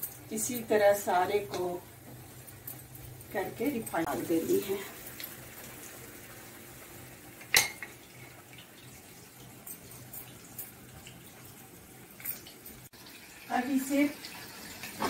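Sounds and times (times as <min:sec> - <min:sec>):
oil sizzling while frying: 0:00.0 - 0:15.0
dishware clink: 0:07.5 - 0:08.0.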